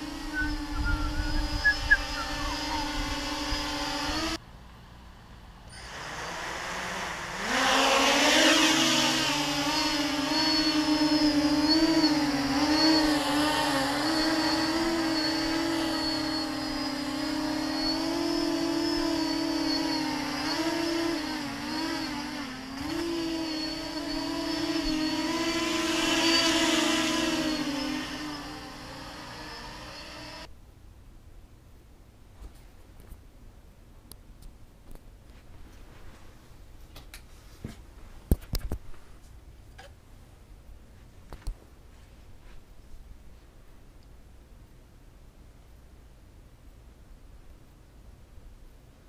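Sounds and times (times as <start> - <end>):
quadcopter motors buzzing: 0.0 - 4.4, 5.7 - 30.5.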